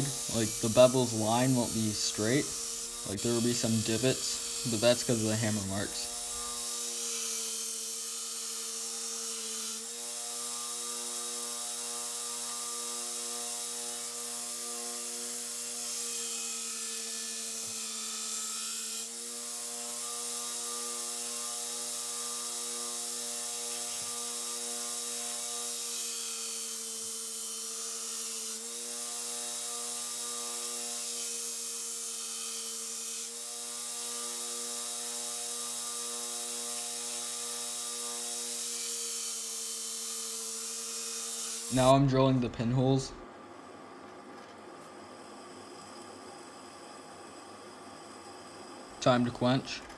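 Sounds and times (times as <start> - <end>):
belt grinder humming: 0.0 - 49.9.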